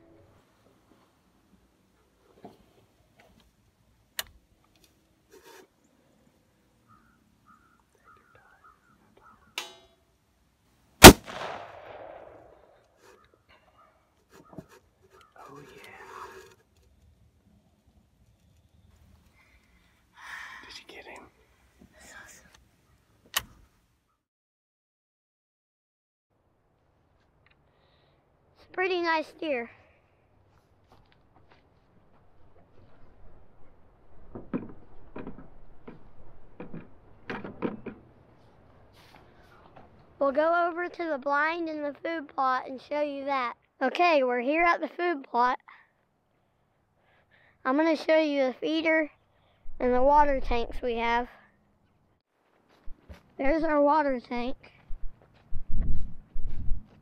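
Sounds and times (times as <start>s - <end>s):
loud gunshot with echo: 11.0s - 12.6s.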